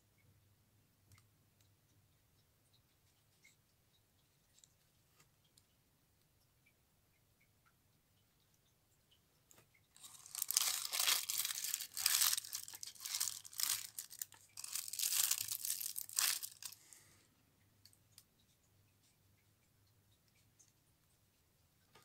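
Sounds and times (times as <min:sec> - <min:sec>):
wrapping crinkling and crumpling: 0:10.0 - 0:17.0.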